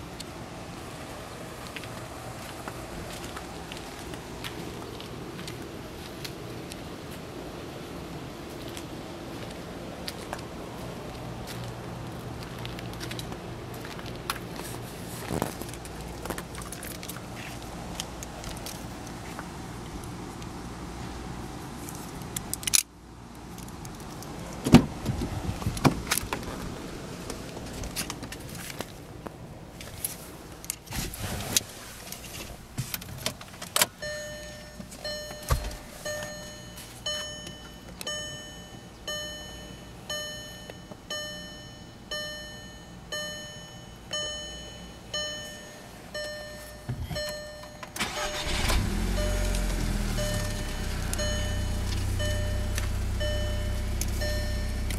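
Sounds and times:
dashboard warning chime: 34.0s - 54.9s
car door and handle clicks: 35.3s - 36.3s
car engine cranking and starting: 46.9s - 54.9s.

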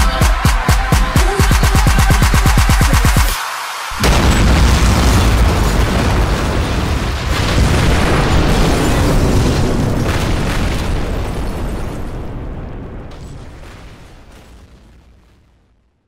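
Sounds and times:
explosion boom: 4.0s - 15.6s.

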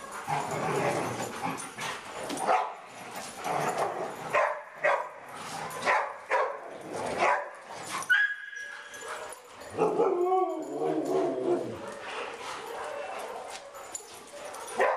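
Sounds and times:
dogs barking: 2.4s - 2.8s, 3.4s - 5.2s, 5.8s - 8.4s, 9.2s - 10.3s, 11.6s - 14.9s.

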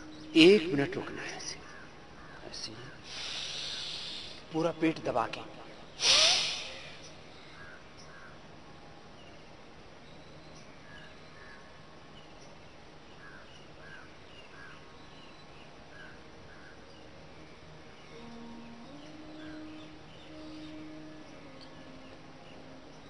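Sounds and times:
bird calling: 0.0s - 4.5s, 5.8s - 8.4s, 18.0s - 23.0s
forceful exhale: 3.1s - 4.4s, 6.0s - 7.0s.

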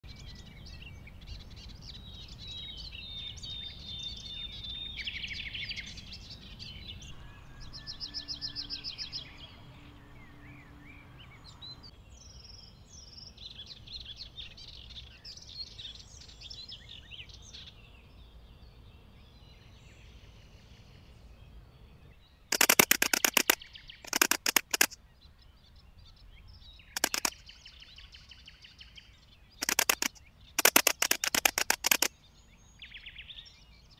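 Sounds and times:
birds chirping and trilling: 0.1s - 33.9s
locust stridulating: 22.5s - 25.0s, 27.0s - 27.5s, 29.6s - 32.2s.

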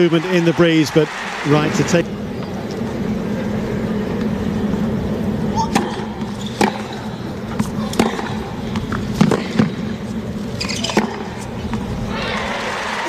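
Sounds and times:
stadium crowd hum: 0.0s - 13.0s
tennis ball struck by rackets: 5.7s - 10.0s, 10.6s - 11.9s.

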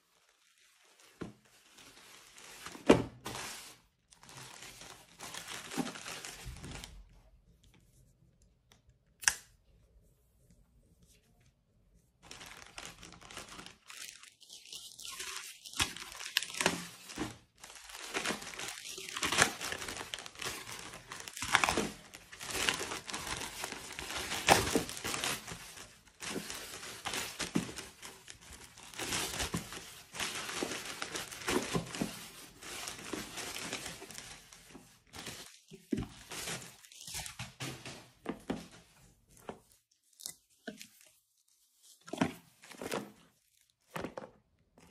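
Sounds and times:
plastic bag crinkling and tearing: 0.1s - 7.1s, 12.2s - 38.0s.

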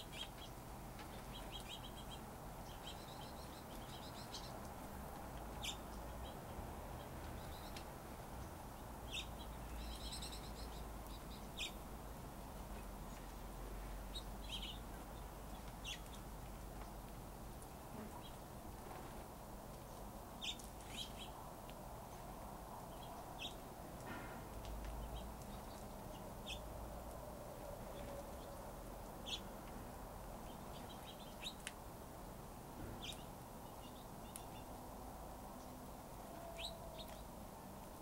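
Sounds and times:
finches chirping: 5.6s - 6.4s, 36.4s - 37.3s.

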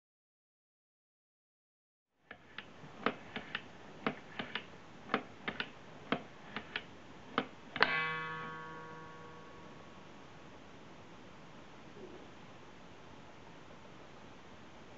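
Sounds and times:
wooden mechanism clicking: 2.3s - 8.0s.

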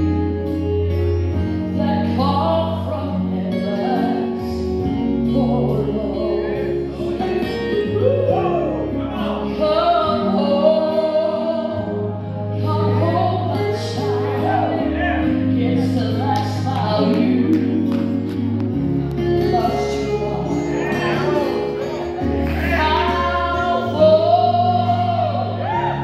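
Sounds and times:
musical accompaniment with bass: 0.0s - 26.0s
woman singing gospel song: 1.7s - 8.5s, 9.1s - 26.0s.

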